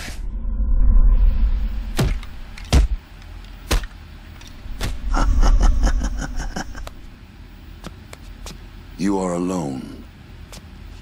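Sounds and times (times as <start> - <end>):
deep low rumble: 0.0 - 2.6, 4.5 - 7.2.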